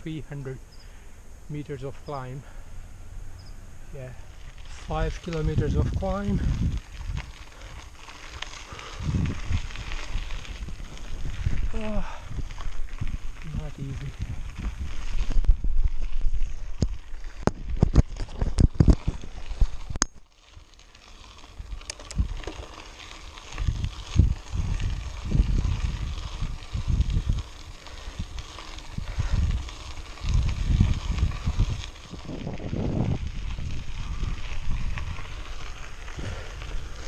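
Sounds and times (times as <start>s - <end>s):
wind on microphone: 4.6s - 7.8s, 8.6s - 20.0s, 22.0s - 22.5s, 23.5s - 37.0s
bike clicks and knocks: 16.7s - 20.5s, 21.3s - 24.3s.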